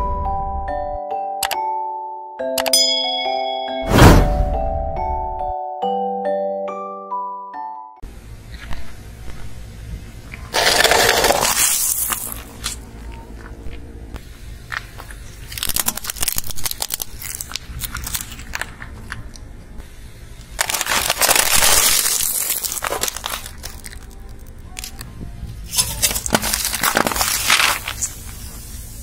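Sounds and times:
plastic cup crunching under tyre: 0:10.5 - 0:12.8, 0:15.0 - 0:18.9, 0:20.6 - 0:25.0, 0:25.7 - 0:28.2
small plastic objects cracking: 0:10.5 - 0:12.8, 0:14.8 - 0:19.4, 0:20.6 - 0:25.1, 0:25.7 - 0:28.2
plastic container crushed: 0:10.6 - 0:12.8, 0:20.6 - 0:24.2, 0:25.7 - 0:28.1
low steady rumble: 0:22.7 - 0:29.0.

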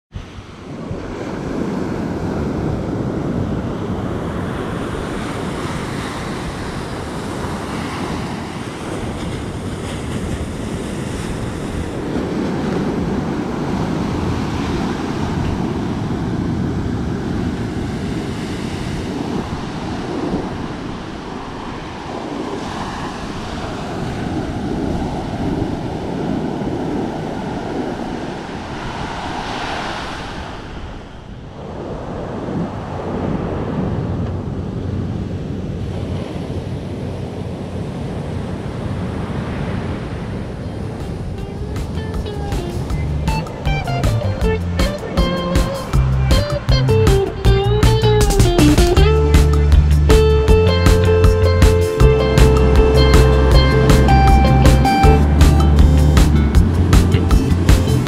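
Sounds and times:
surf washing up beach: 0:00.1 - 0:58.0
wind buffeting microphone: 0:00.1 - 0:58.0.

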